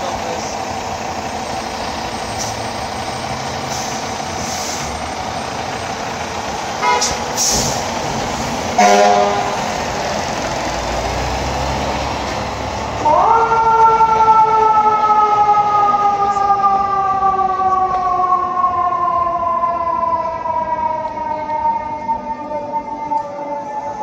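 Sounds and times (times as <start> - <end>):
fire engine diesel running: 0.0 - 24.0
vehicle horn blast: 6.8 - 7.2, 8.8 - 9.6.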